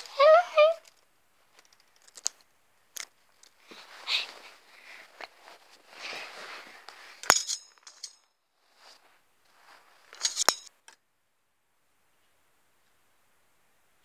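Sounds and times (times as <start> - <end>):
soft rustling: 1.3 - 10.6
metal cage bars clinking: 7.2 - 8.3, 10.2 - 10.7.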